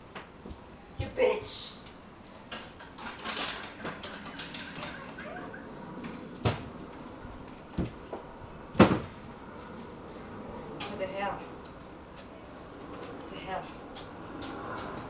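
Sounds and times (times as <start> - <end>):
metal ironing board clattering: 2.8 - 5.6.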